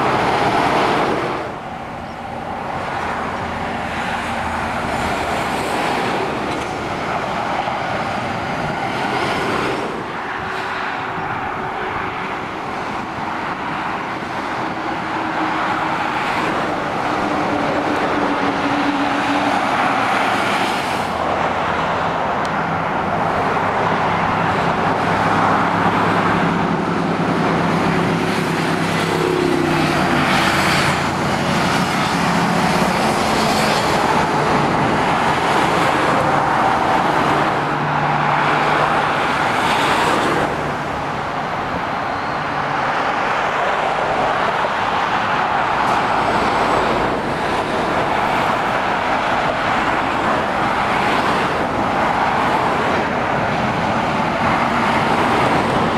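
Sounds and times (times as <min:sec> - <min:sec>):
traffic passing with tyre noise: 0:00.0 - 0:55.9
motorcycles passing: 0:13.6 - 0:42.8.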